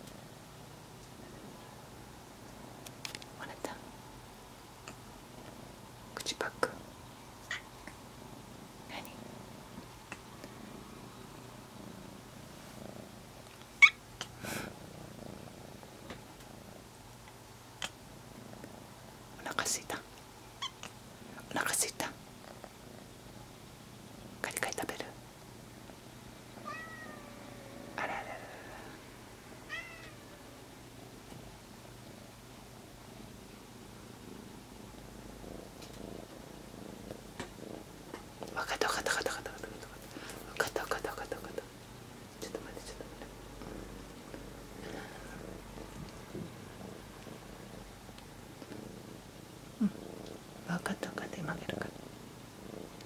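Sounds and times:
kitten purring: 0.0 - 53.0
cat meowing: 26.6 - 27.8, 29.7 - 30.3.

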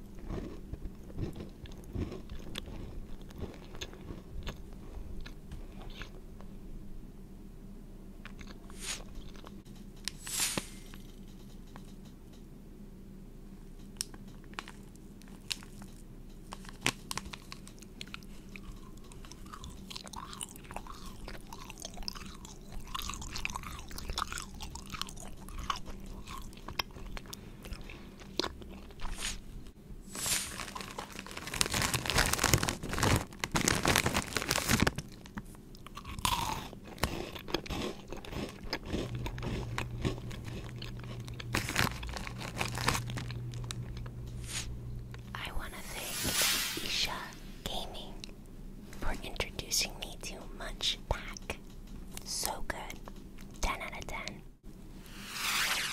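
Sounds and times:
crunchy candy chewing: 0.0 - 6.2, 14.0 - 29.4, 30.2 - 44.1
snack packet handled: 16.5 - 18.8, 30.2 - 35.9, 39.0 - 44.6.

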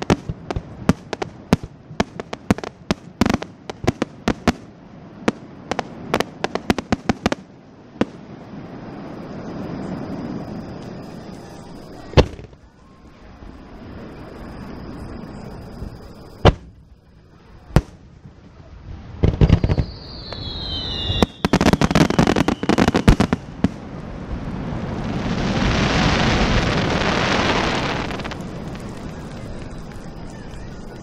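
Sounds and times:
fireworks bangs: 0.0 - 8.4, 9.7 - 12.7, 15.3 - 18.4, 19.1 - 31.0
long hiss: 19.1 - 31.0
firework whistle falling in pitch: 19.5 - 23.4.

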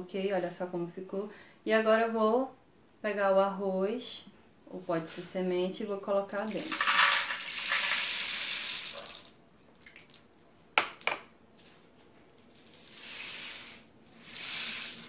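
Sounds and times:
rice trickling in rain stick: 6.5 - 10.1, 12.5 - 15.0.

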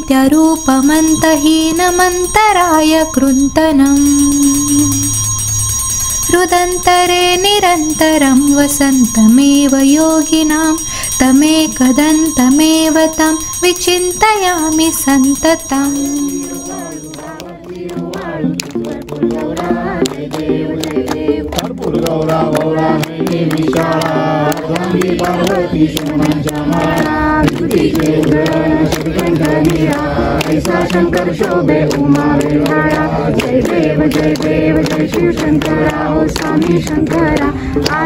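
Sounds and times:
group singing devotional song: 14.4 - 38.0
hand-clapping: 15.9 - 38.0.

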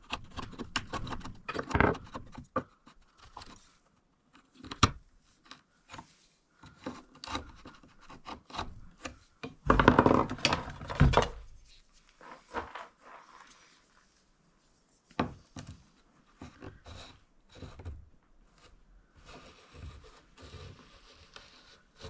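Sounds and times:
wood being scraped by hand: 6.7 - 9.2
small knocks: 9.0 - 11.5.

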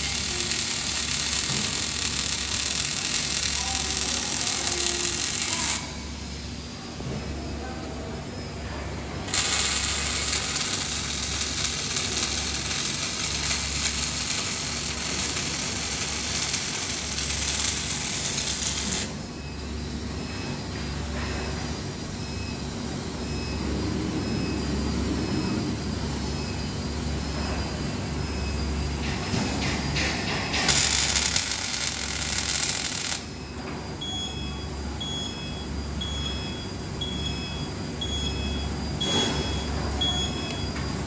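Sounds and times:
welding arc crackling hiss: 0.0 - 6.3, 9.3 - 19.2, 29.4 - 33.4.

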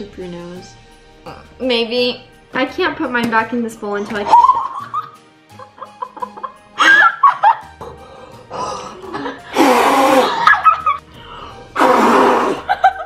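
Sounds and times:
light background music: 0.0 - 13.0
girls laughing loudly: 4.2 - 7.7, 10.1 - 11.0, 12.6 - 13.0.

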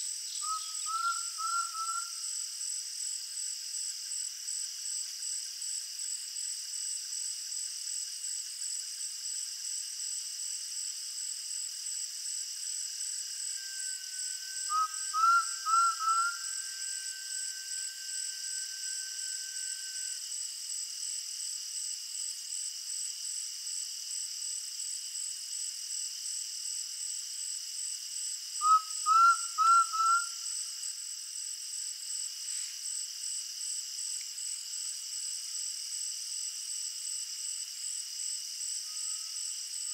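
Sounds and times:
insect chorus buzzing: 0.0 - 39.9
faint long steady whistle: 0.3 - 2.5, 12.6 - 20.6, 28.6 - 30.9, 38.7 - 39.9
bird calling rising whistles: 0.4 - 2.1, 13.6 - 20.2, 28.6 - 30.4.

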